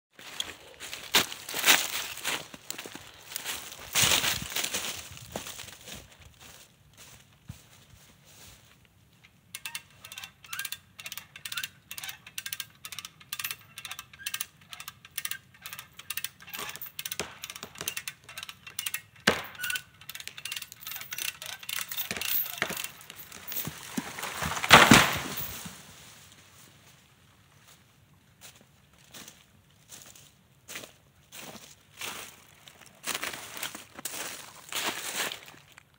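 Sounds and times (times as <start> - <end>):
tree cutting strokes: 21.3 - 26.0
tree crashing down: 22.6 - 26.1.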